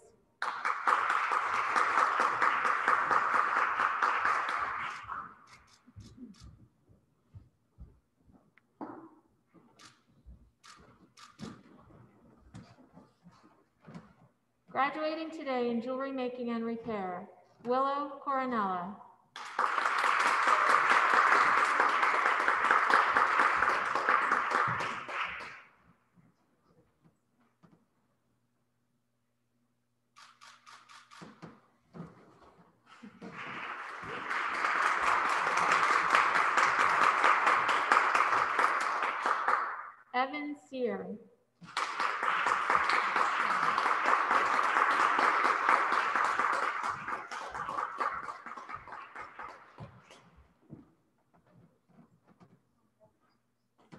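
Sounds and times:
group applauding: 0.0s - 5.7s, 19.3s - 25.8s, 32.9s - 40.0s, 41.6s - 50.2s.

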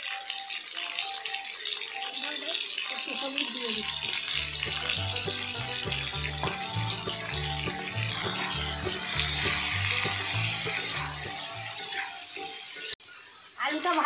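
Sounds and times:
potatoes sizzling in hot oil: 0.0s - 14.0s
background music with bass line: 3.9s - 12.0s.

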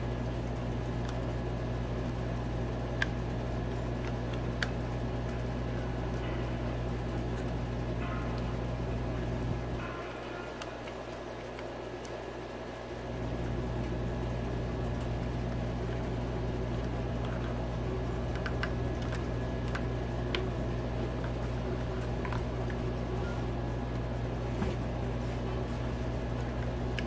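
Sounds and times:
low mechanical hum: 0.0s - 27.0s
faint clicks of small parts: 2.9s - 5.4s, 18.2s - 20.6s.

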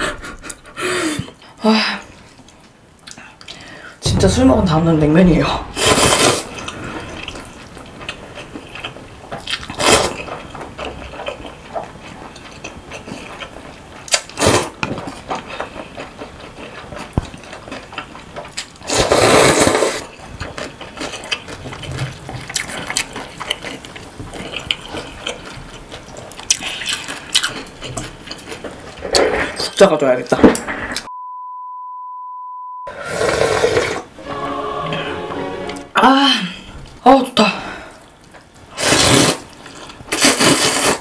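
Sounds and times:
slurping noodles: 5.8s - 7.5s, 18.8s - 20.2s, 32.9s - 34.2s, 38.8s - 41.0s
wet chewing clicks: 20.4s - 28.8s.

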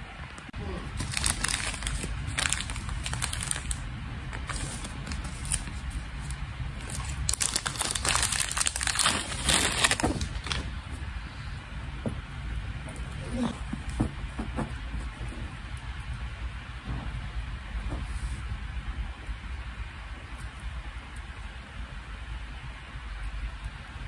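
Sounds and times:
plastic bag crinkling: 0.6s - 11.0s.

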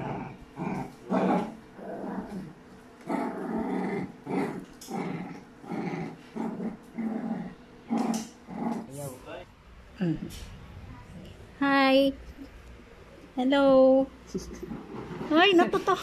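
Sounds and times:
dogs growling: 0.0s - 9.1s, 14.4s - 15.7s.

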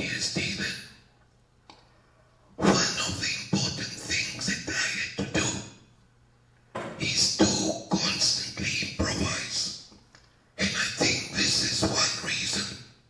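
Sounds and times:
man speaking into a microphone: 0.0s - 1.0s, 2.6s - 5.8s, 6.9s - 9.9s, 10.6s - 13.0s.

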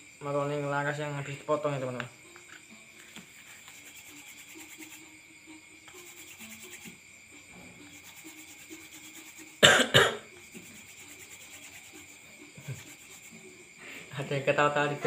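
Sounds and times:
person coughing: 9.6s - 10.3s.

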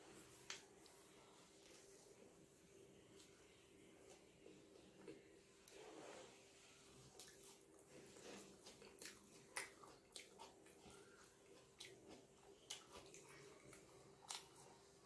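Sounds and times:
faint steady hum: 0.0s - 15.0s
chewing toasted sandwich: 7.0s - 15.0s.

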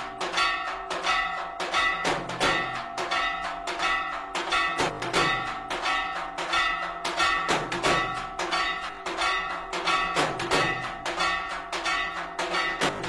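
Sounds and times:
bells ringing: 0.0s - 13.0s
drums beating: 0.0s - 13.0s.

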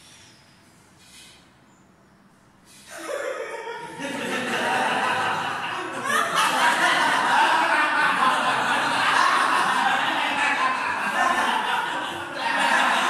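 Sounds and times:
group of people laughing: 2.9s - 13.0s.

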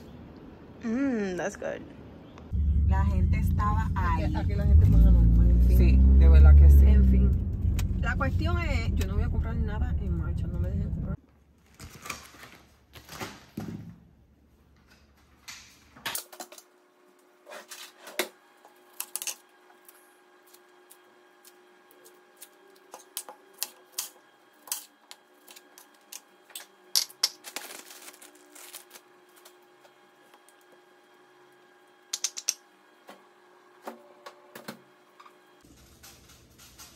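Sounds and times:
plastic bag handling: 27.2s - 29.6s.

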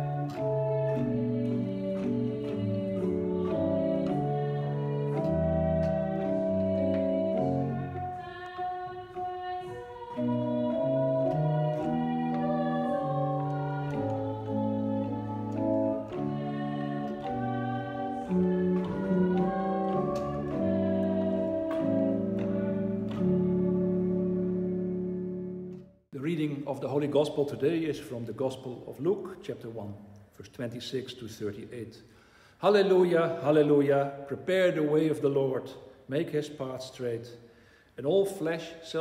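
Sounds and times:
pipe organ playing chords: 0.0s - 25.8s.

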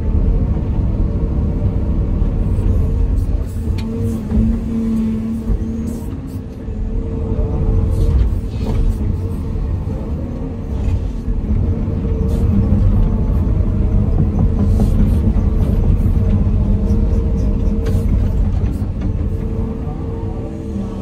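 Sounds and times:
excavator engine and hydraulics: 0.0s - 21.0s.

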